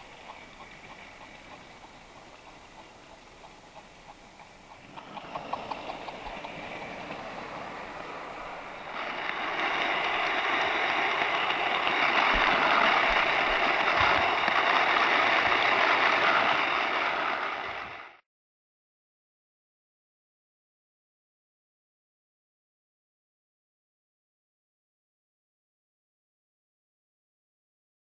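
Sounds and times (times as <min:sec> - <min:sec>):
model train motor whirring: 0:00.0 - 0:18.1
train wheels rattling on rails: 0:00.0 - 0:18.2.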